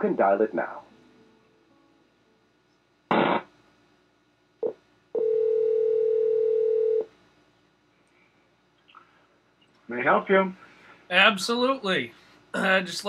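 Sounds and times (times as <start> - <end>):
line noise burst: 3.1 - 3.5
telephone ringing tone: 5.2 - 7.1.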